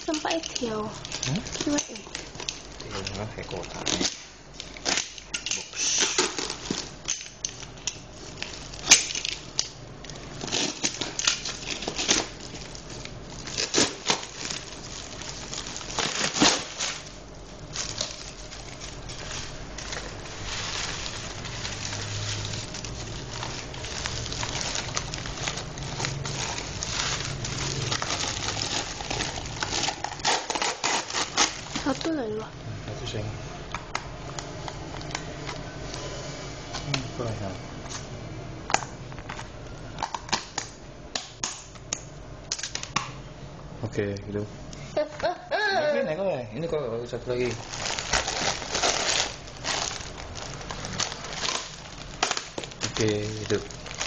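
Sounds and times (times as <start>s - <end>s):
paper and plastic wrapping crinkling: 0.0s - 32.5s, 47.2s - 54.0s.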